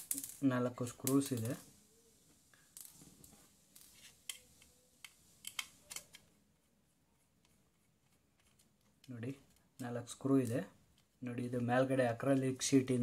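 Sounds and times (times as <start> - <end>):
screwdriver clicks and taps: 4.3 - 6.2.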